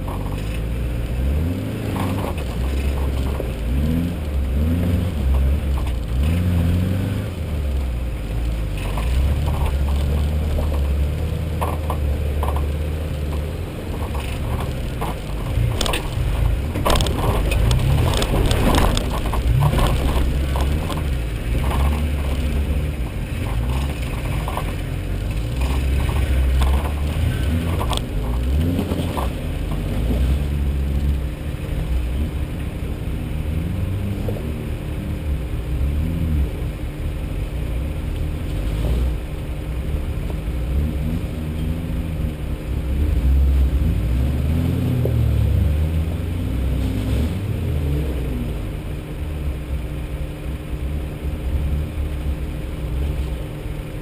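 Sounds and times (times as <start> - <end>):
off-road engine at low revs: 0.0 - 54.0
vehicle body knocks and rattles: 8.8 - 30.3.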